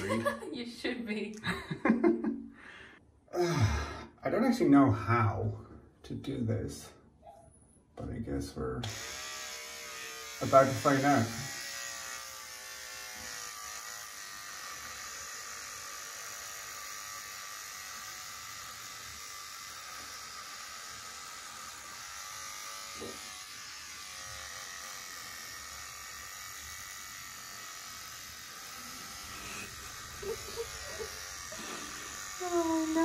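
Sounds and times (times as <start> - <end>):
person laughing nervously: 0.0 - 0.5, 1.4 - 2.4, 30.2 - 31.9
electric beard trimmer buzzing: 8.8 - 33.0.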